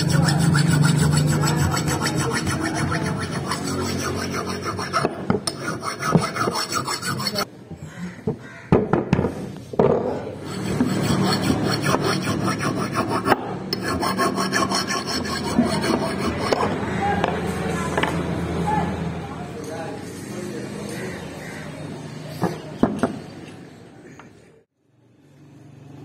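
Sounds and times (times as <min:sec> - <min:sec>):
file scraping steel: 0:00.0 - 0:07.5, 0:10.4 - 0:16.9.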